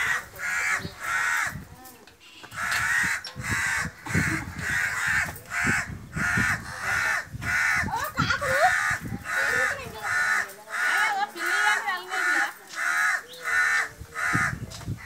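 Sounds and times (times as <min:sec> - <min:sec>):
crows cawing harshly: 0:00.0 - 0:15.0.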